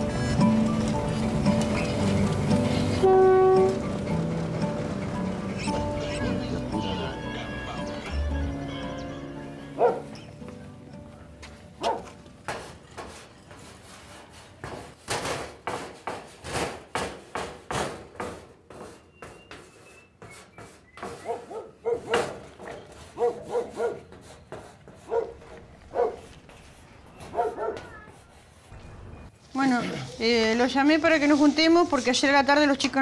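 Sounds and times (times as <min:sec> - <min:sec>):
dog barking: 0:09.8 - 0:10.1, 0:11.8 - 0:12.1, 0:21.2 - 0:22.4, 0:23.2 - 0:24.1, 0:25.0 - 0:26.3, 0:27.2 - 0:28.0
chalk scraping on blackboard: 0:18.7 - 0:21.6, 0:22.8 - 0:25.5, 0:26.2 - 0:28.8.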